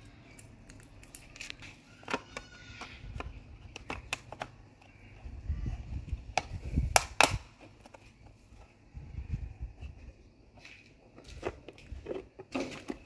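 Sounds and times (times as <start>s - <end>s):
plastic clicks and taps: 0.3s - 5.0s.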